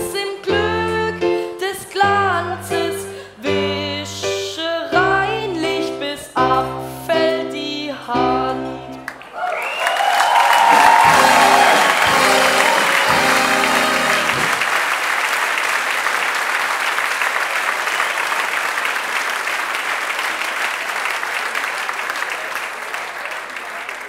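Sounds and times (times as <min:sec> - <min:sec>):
audience applauding: 0:09.0 - 0:24.0
electronic keyboard chords: 0:11.0 - 0:14.6.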